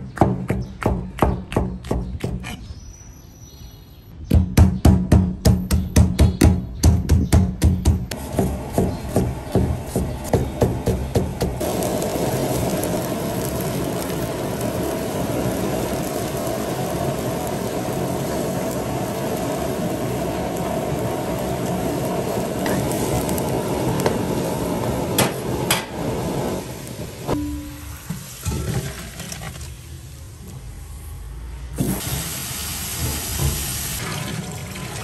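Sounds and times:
food sizzling in a pan: 0:11.6 - 0:31.2, 0:31.8 - 0:35.0.

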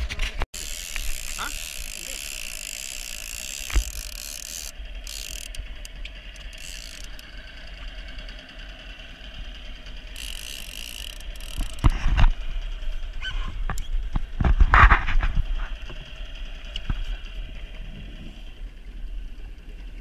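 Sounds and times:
fishing reel whirring and clicking: 0:00.5 - 0:13.9.

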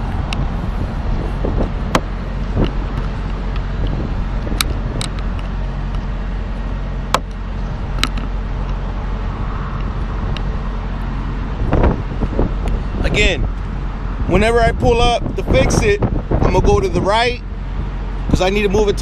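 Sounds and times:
truck diesel engine running: 0:00.0 - 0:19.0.

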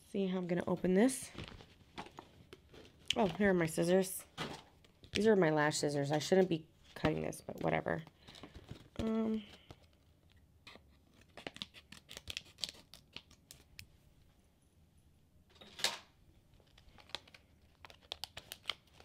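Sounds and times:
packaging crinkling and tearing: 0:10.7 - 0:13.9, 0:16.5 - 0:19.0.

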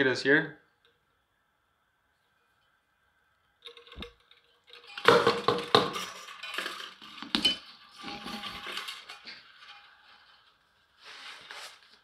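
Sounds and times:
metal parts clattering on wood: 0:03.6 - 0:10.2.

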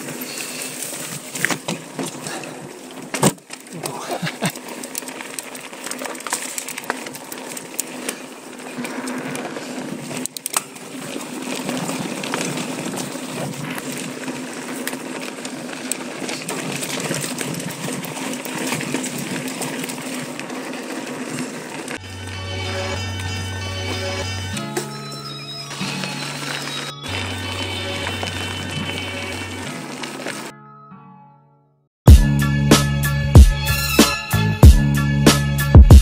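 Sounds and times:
bike clicks and rattles: 0:00.0 - 0:30.5
bike tyres on dirt: 0:00.0 - 0:30.5.

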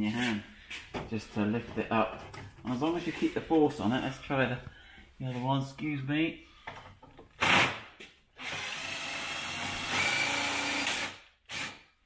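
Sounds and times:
cordless drill running: 0:08.4 - 0:11.9.

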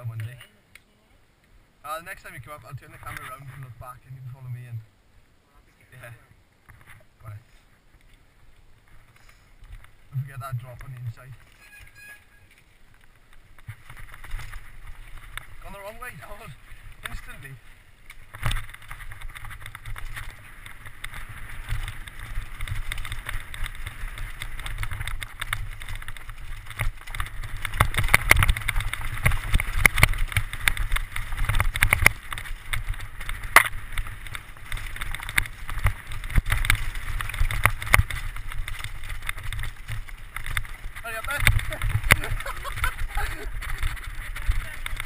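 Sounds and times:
bike knocking and rattling: 0:12.6 - 0:45.0.

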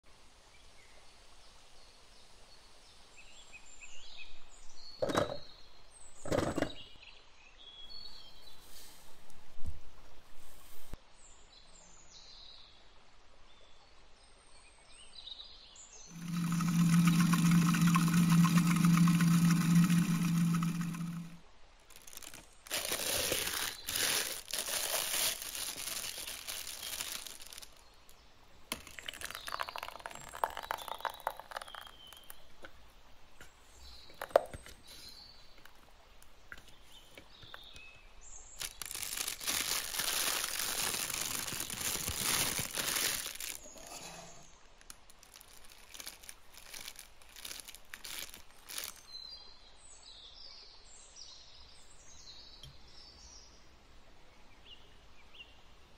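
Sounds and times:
plastic bag crinkling: 0:16.1 - 0:27.9, 0:28.7 - 0:32.2, 0:38.6 - 0:44.0, 0:44.6 - 0:49.1.

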